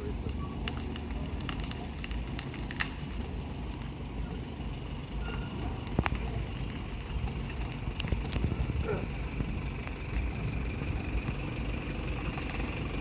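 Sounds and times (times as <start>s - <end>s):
wind buffeting microphone: 5.2s - 11.5s.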